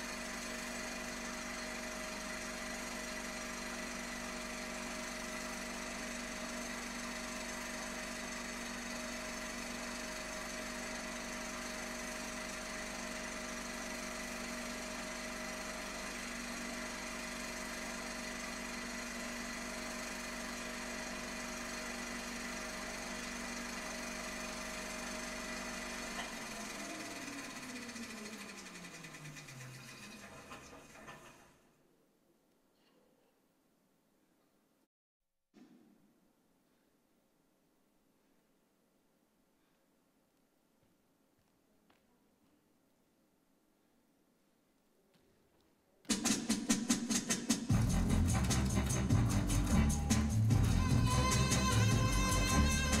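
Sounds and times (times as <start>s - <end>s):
machine-like buzzing drone: 47.7s - 53.0s.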